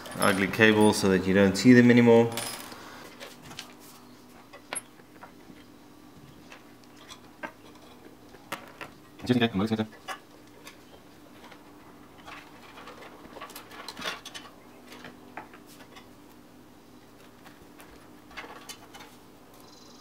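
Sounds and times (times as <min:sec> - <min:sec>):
faint steady hum: 0:00.0 - 0:20.0
cables clicking and rustling: 0:10.0 - 0:16.4.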